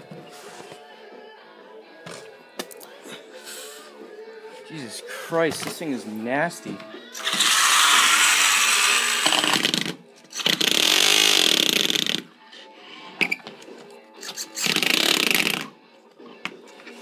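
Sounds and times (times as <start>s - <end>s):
screws scraping on ground: 7.2s - 9.7s
rc car motor revving: 7.2s - 11.8s.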